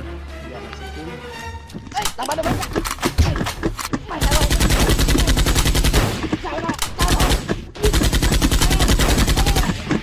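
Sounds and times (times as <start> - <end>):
rapid automatic gunfire: 4.2 - 9.9.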